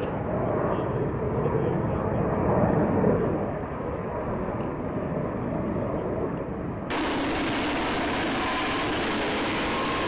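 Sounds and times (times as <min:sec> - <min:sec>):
loud jet engine with whine: 0:00.0 - 0:10.0
distant jet engine rumbling: 0:06.9 - 0:10.0.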